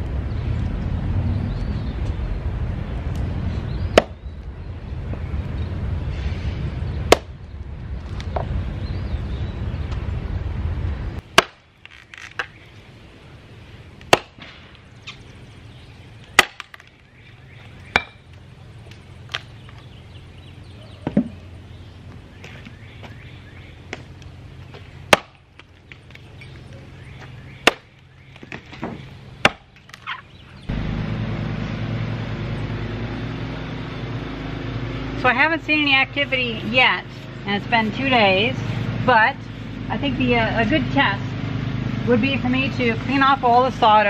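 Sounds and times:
axe chopping wood: 0:03.9 - 0:04.2, 0:07.1 - 0:07.4, 0:11.3 - 0:11.7, 0:14.0 - 0:14.7, 0:16.3 - 0:16.9, 0:17.9 - 0:18.2, 0:25.1 - 0:25.7, 0:27.6 - 0:30.2
steady low hum: 0:12.5 - 0:44.0.

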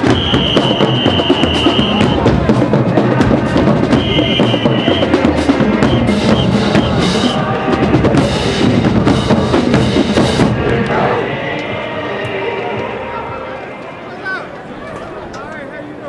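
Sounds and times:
snare drums: 0:00.0 - 0:11.1
bass drums: 0:00.0 - 0:11.2.

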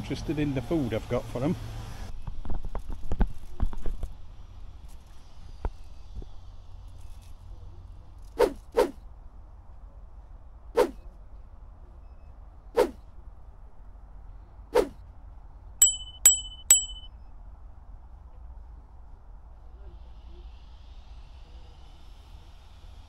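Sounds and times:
notification bell dings: 0:15.8 - 0:17.1.

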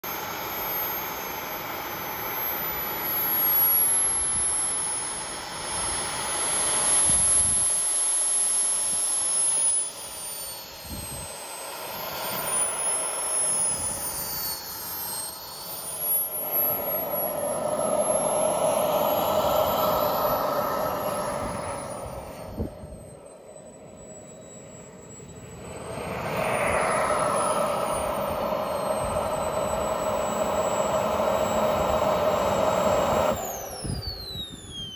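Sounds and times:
model jet turbine whine: 0:00.0 - 0:34.9.

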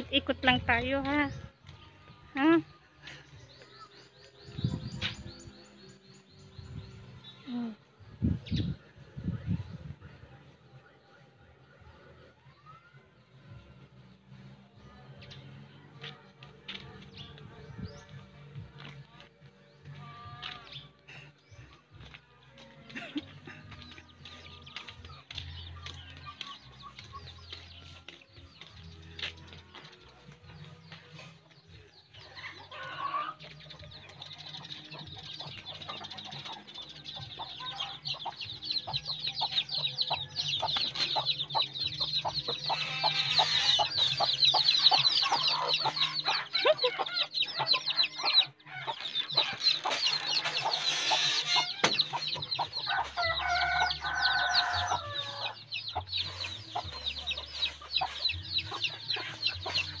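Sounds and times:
chickens clucking: 0:30.6 - 1:00.0.

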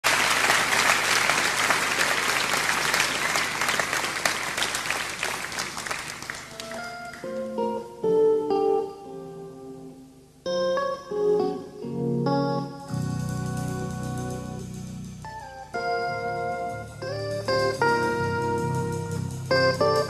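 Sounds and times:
audience applause: 0:00.0 - 0:07.3
clean electric guitar notes: 0:06.5 - 0:20.0.

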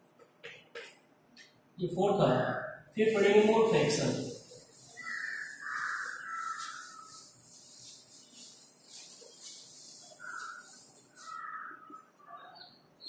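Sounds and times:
duster wiping chalkboard: 0:03.0 - 0:12.3.

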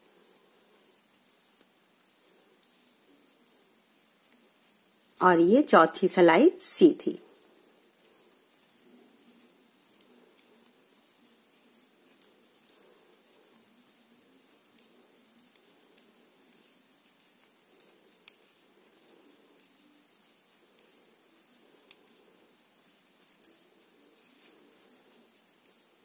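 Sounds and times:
knitting needles clicking: 0:08.5 - 0:26.0.

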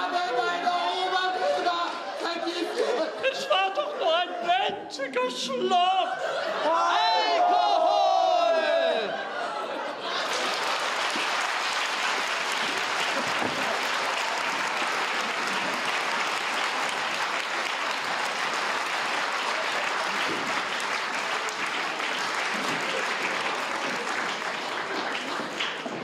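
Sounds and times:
audience applauding: 0:10.0 - 0:26.0.

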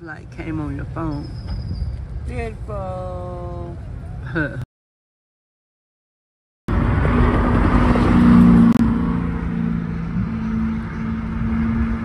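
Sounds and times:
car engine and tyre noise: 0:06.7 - 0:12.0.

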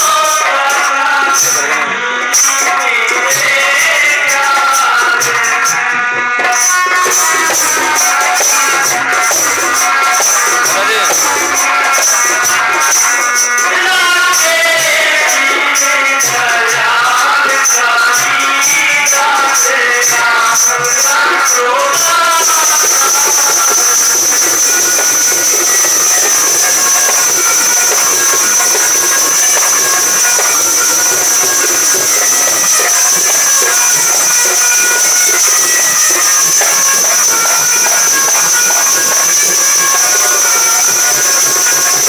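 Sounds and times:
person singing: 0:00.0 - 0:42.0
rhythmic shaker: 0:00.0 - 0:42.0
high-pitched whine: 0:20.3 - 0:42.0
steady loud hiss: 0:22.1 - 0:42.0.

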